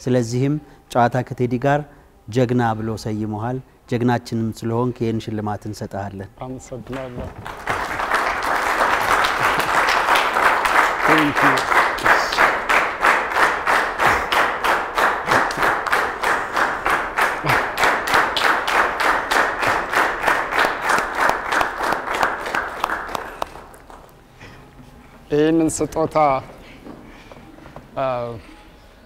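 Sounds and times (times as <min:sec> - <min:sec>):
audience clapping in unison: 0:06.8 - 0:24.2.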